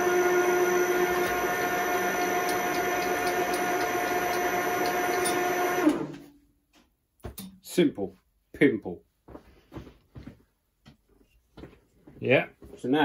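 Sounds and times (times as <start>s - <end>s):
milling machine motor whine: 0.0s - 6.2s.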